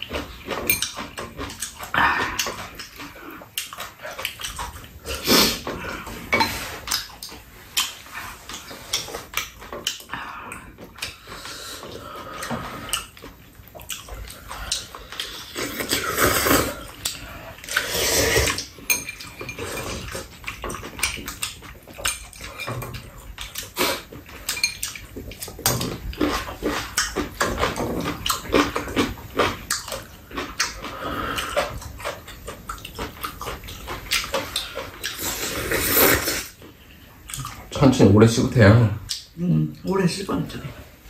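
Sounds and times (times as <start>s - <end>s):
chewing: 0.0s - 40.0s
people slurping noodles: 1.4s - 7.1s, 7.9s - 21.6s, 22.4s - 36.6s
chopsticks and spoons tapping bowls: 18.6s - 23.6s, 24.2s - 28.8s.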